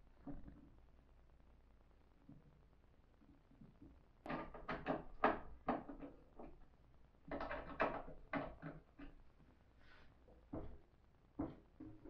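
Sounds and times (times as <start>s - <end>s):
wooden knocks and clatter: 3.7s - 6.6s, 7.2s - 9.3s, 10.4s - 12.0s.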